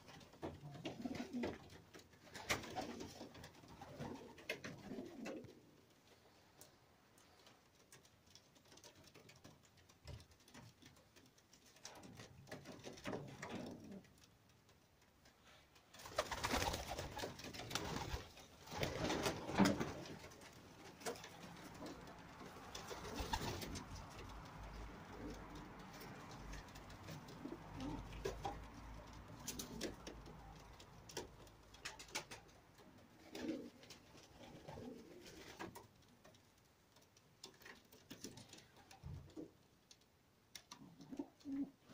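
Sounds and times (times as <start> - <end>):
pigeons cooing: 2.5 - 5.7, 21.2 - 31.2.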